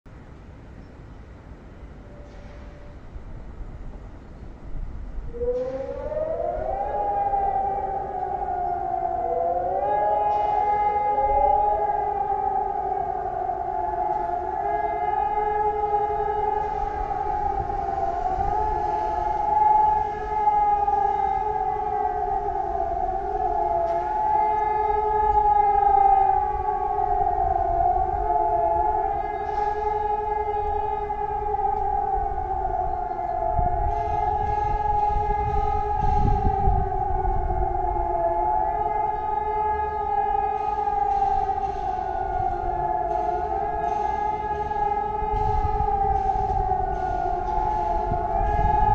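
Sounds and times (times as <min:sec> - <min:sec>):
civil defence sirens: 0:00.2 - 0:48.9.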